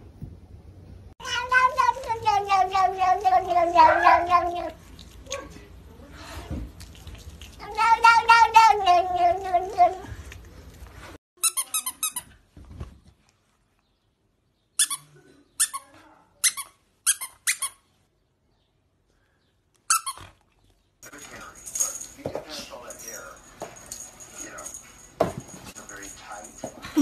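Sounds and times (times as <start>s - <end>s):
cat meowing: 1.2s - 4.8s, 7.6s - 10.2s.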